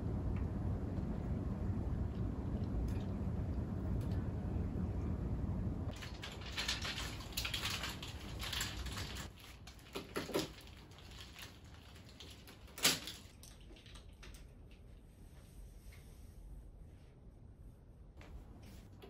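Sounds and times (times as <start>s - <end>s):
laundry rustling: 5.9s - 13.9s.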